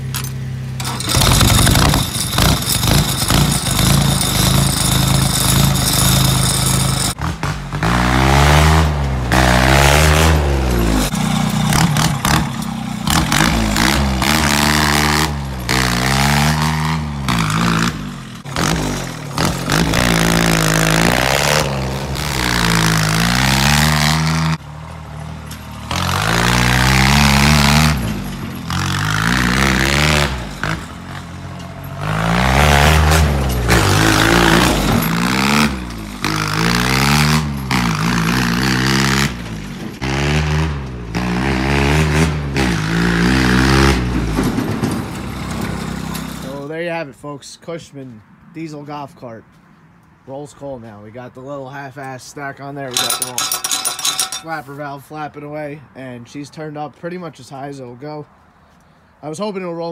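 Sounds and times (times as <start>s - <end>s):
engine revving: 0.0s - 46.7s
high engine whine: 0.0s - 46.7s
diesel engine clattering: 0.0s - 46.8s.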